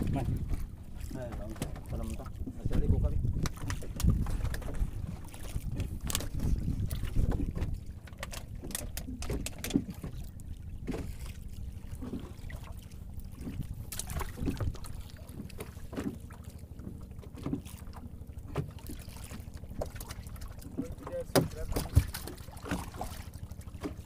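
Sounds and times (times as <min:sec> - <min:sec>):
low steady rumble: 0:00.0 - 0:24.0
knocks of fish and gear handled: 0:07.2 - 0:10.2, 0:20.7 - 0:22.8.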